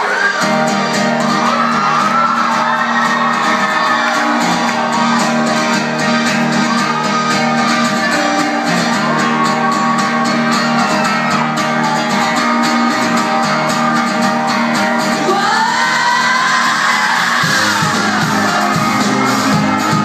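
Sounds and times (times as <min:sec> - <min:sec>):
live rock band: 0:00.0 - 0:20.0
strummed guitar chords: 0:00.0 - 0:20.0
person singing: 0:14.9 - 0:20.0.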